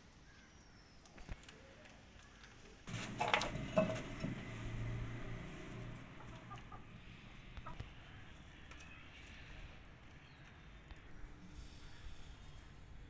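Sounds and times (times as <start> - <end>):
chickens clucking: 5.7 - 8.8.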